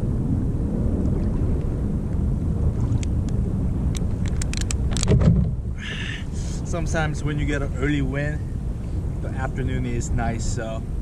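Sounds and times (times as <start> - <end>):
wind buffeting microphone: 0.0 - 11.0
small sharp clicks: 3.0 - 5.1.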